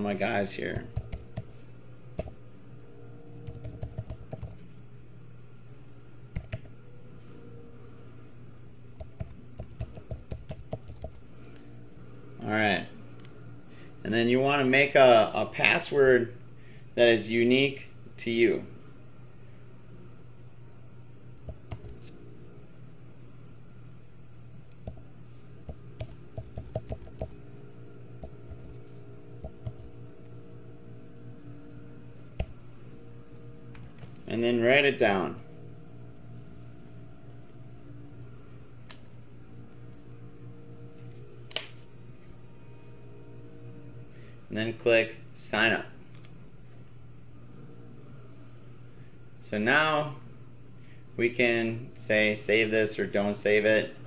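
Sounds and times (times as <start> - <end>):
steady low hum: 0.0 - 54.0
typing on computer keyboard: 0.9 - 1.5, 3.5 - 4.6, 6.4 - 6.7, 9.0 - 11.2, 21.4 - 22.0, 25.7 - 27.3.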